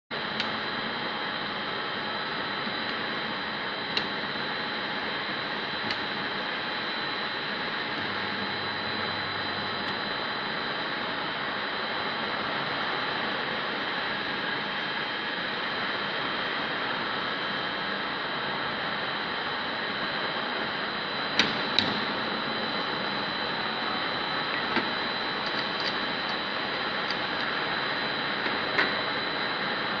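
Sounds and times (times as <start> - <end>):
welding machine humming: 0.2 - 11.7, 20.0 - 30.0.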